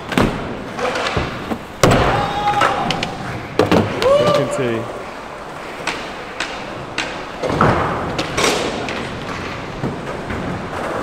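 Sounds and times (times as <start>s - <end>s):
skateboard knocks and thuds: 5.9s - 11.0s.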